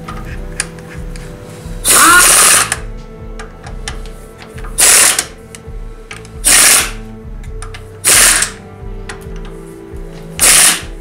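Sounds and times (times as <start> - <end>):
pneumatic impact wrench bursts: 1.8 - 2.8, 4.8 - 5.4, 6.4 - 7.0, 8.0 - 8.6, 10.4 - 10.9.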